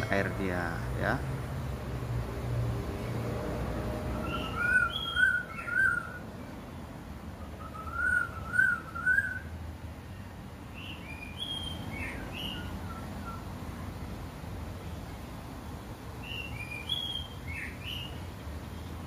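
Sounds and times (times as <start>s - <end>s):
songbird whistling: 4.2s - 6.2s, 7.4s - 9.5s, 10.8s - 13.5s, 16.2s - 18.2s.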